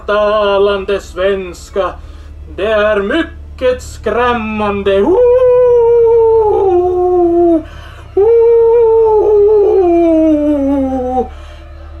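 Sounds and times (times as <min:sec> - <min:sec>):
person wailing ghostly hoots: 0:04.1 - 0:12.0.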